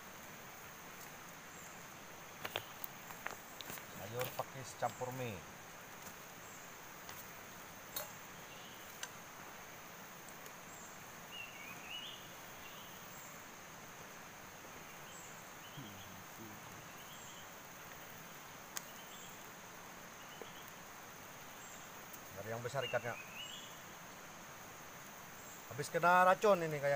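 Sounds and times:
high insect drone: 0.0 - 26.9
bird chirps: 10.6 - 13.4, 14.8 - 17.6, 20.2 - 20.8, 21.4 - 23.9.

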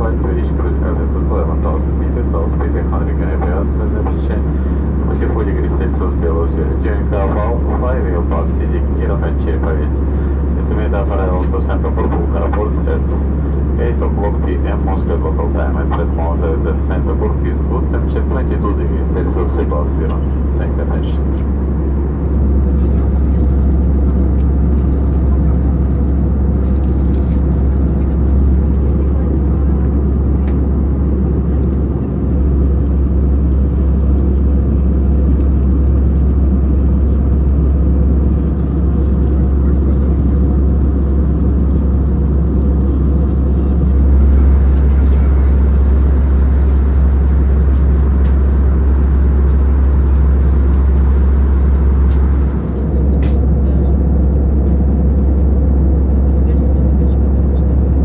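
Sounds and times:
airplane cabin engine rush: 0.0 - 58.0.

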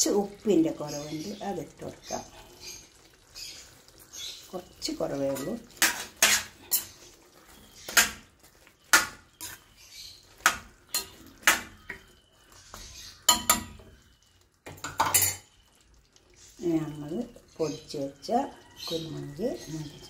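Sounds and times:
metal spoon clinking on steel pan: 10.4 - 12.0, 13.3 - 13.8, 14.8 - 15.5.

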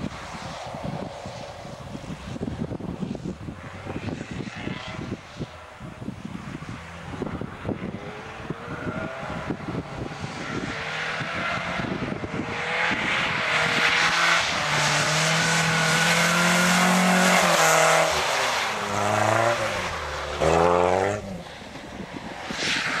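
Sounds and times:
car engine revving hard: 8.3 - 21.5.

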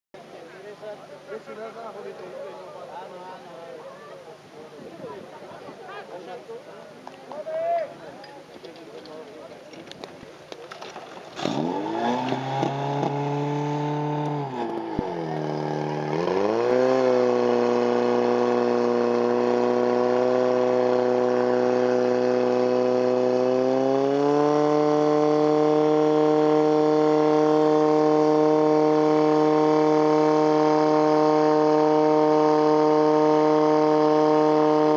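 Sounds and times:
pump engine revving: 10.8 - 34.9.

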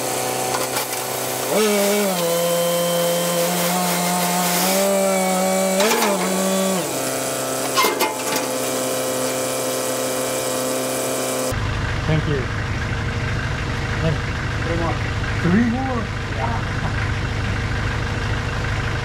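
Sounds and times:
forklift engine running: 0.0 - 19.0
sharp metal clanks: 7.7 - 8.6.

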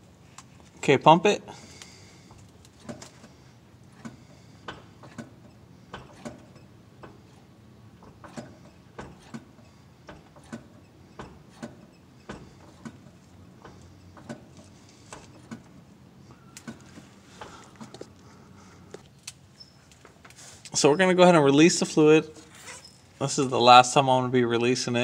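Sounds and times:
clutch pedal clicks: 16.5 - 18.2.

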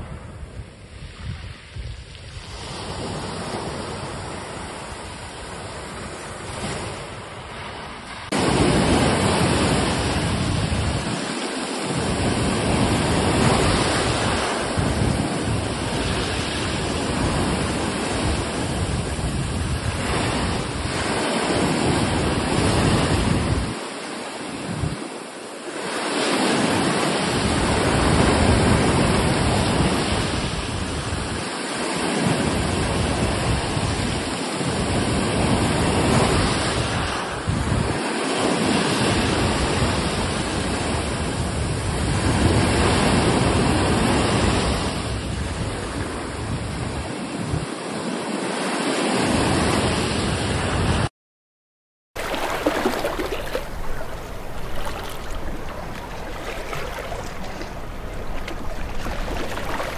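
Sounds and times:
wind rumbling on microphone: 0.0 - 25.2, 25.8 - 48.2, 52.2 - 59.9
surf rushing: 52.2 - 59.9.

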